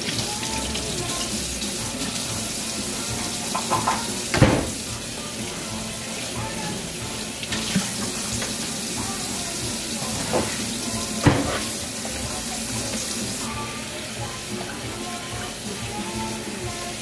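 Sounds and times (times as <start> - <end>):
tap running into steel sink: 3.5 - 4.9.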